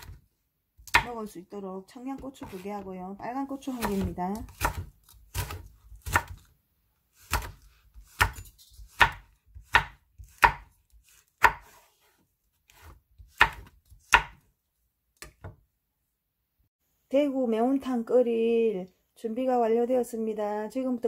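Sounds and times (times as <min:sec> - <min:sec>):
knife chopping on wooden board: 0:00.8 - 0:01.2, 0:02.4 - 0:02.7, 0:03.7 - 0:06.5, 0:07.2 - 0:14.5.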